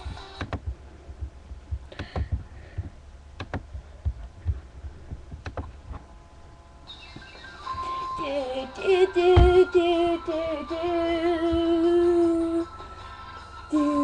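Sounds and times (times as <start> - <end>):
music with singing: 7.4 - 14.0.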